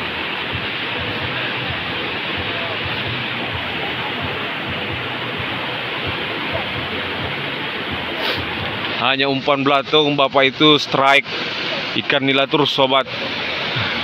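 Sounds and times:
river water rushing: 0.0s - 14.0s.

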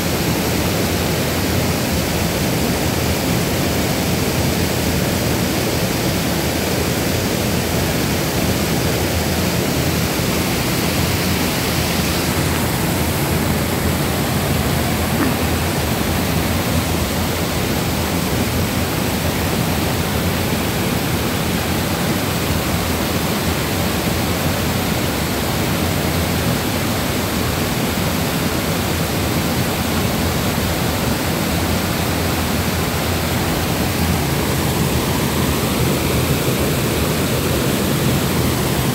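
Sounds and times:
fast-flowing stream: 0.0s - 38.9s
waterfall rushing: 0.0s - 38.9s.

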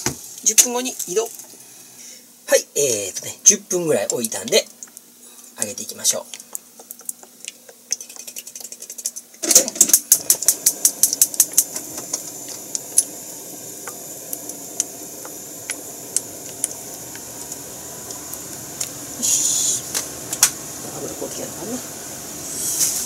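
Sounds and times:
chicken sizzling in frying oil: 5.8s - 23.0s.

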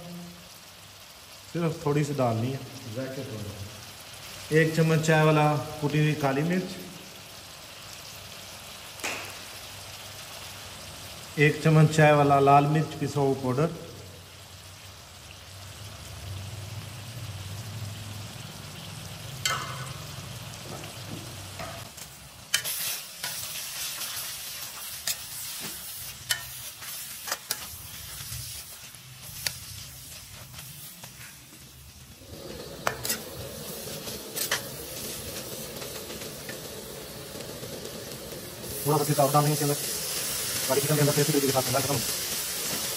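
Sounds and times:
food sizzling in oil: 0.0s - 42.9s
steel spoon scraping pan: 22.5s - 31.4s, 32.4s - 36.6s.

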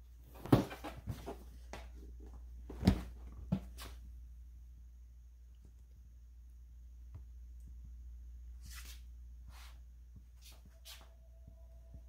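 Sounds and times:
steady low hum: 0.0s - 12.0s
handling knocks and thumps: 0.2s - 4.0s.

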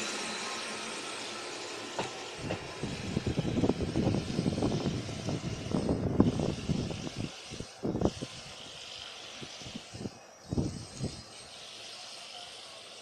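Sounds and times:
electric train running past: 0.0s - 13.0s
wind buffeting microphone: 2.4s - 8.6s, 9.4s - 11.3s.

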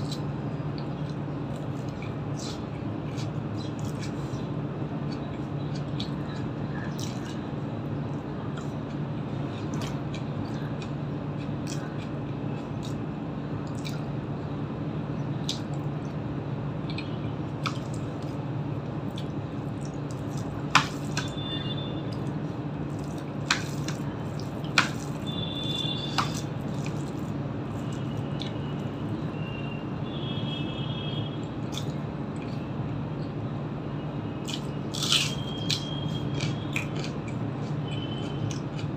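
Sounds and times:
wet chewing and mouth sounds: 0.0s - 29.4s, 31.3s - 33.4s, 34.4s - 38.9s
steady low hum: 0.0s - 38.9s
squishy fingers in food: 22.1s - 29.2s.

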